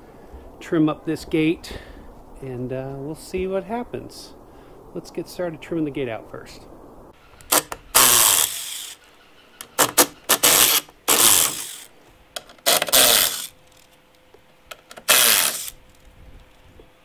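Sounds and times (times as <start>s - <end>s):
cordless driver running in bursts: 7.6s - 9.0s, 9.8s - 11.9s, 12.7s - 13.5s, 15.0s - 15.8s.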